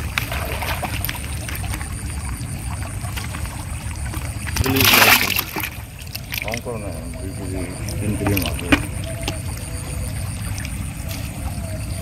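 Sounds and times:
water splash: 0.0s - 6.7s
fish handling rumble in bucket: 0.0s - 12.0s.

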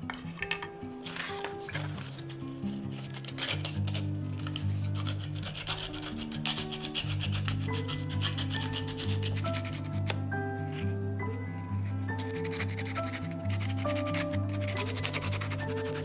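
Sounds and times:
soft background music: 0.0s - 16.0s
sandpaper rasping on wood: 2.0s - 10.2s, 11.8s - 16.0s.

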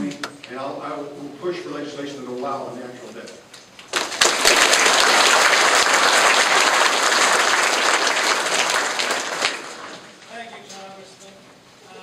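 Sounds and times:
audience applauding: 3.8s - 10.2s.

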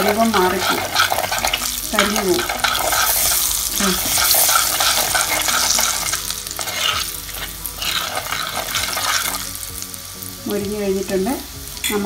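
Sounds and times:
metal spoon scraping clay pot: 0.0s - 9.4s
oil sizzling: 0.0s - 12.0s.

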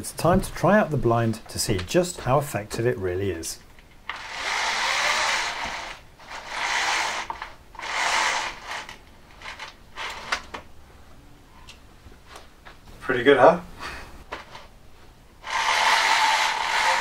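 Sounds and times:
roller blind chain ratcheting: 4.1s - 10.4s, 15.5s - 17.0s.

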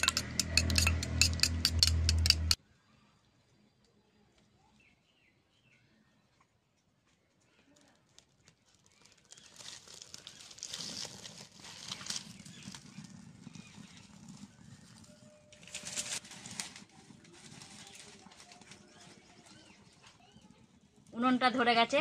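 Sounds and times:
twigs rustling: 7.8s - 14.0s
fire crackling: 7.8s - 21.3s.

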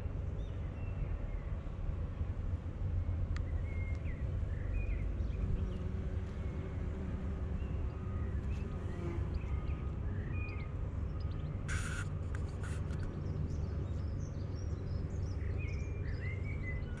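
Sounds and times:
small birds chirping: 7.4s - 17.0s
brief hiss: 11.7s - 13.0s.

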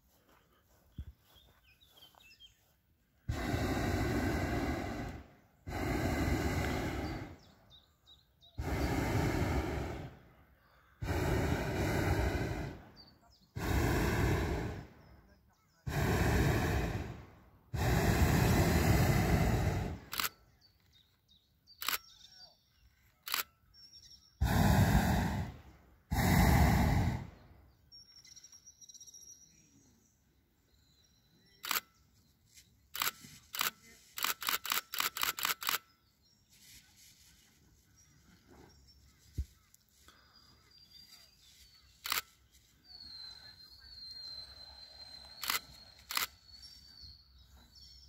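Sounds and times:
propane burner blasts: 3.3s - 7.4s, 8.6s - 10.2s, 11.0s - 12.9s, 13.6s - 14.9s, 15.9s - 20.1s, 24.4s - 27.3s
sharp clicks: 20.0s - 20.4s, 21.8s - 22.1s, 23.0s - 23.5s, 31.6s - 31.9s, 32.9s - 35.9s, 42.0s - 42.4s, 45.3s - 46.4s.

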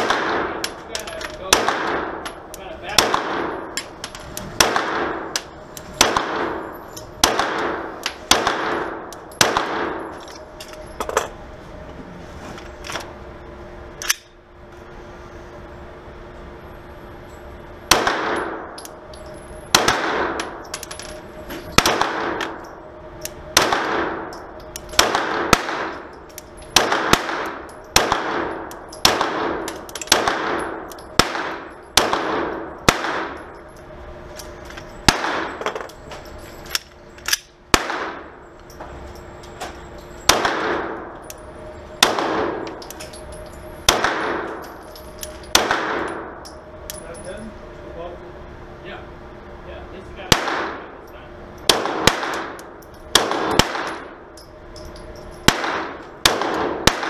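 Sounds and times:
pistol shots with reverberation: 0.0s - 0.8s, 1.5s - 3.8s, 4.6s - 10.2s, 17.9s - 18.8s, 19.7s - 20.6s, 21.7s - 22.6s, 23.5s - 24.4s, 25.0s - 26.1s, 26.7s - 33.5s, 35.0s - 35.8s, 37.7s - 38.4s, 40.3s - 41.2s, 42.0s - 42.7s, 43.8s - 44.7s, 45.5s - 46.4s, 50.3s - 51.0s, 51.7s - 54.2s, 55.4s - 57.0s.

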